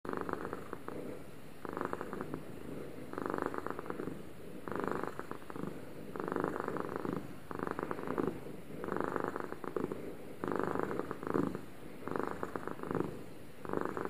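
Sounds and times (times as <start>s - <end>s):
cat purring: 0.1s - 14.0s.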